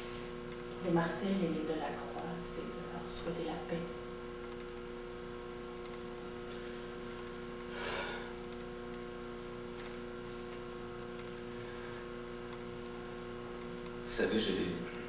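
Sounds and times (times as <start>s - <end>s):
electrical mains hum: 0.0s - 15.0s.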